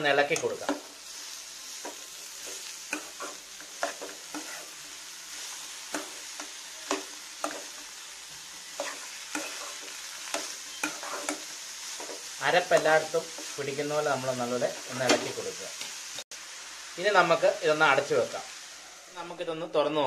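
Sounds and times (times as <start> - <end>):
faint sizzle: 0.0 - 20.0
metal spatula scraping pan: 1.9 - 4.9, 8.6 - 12.2.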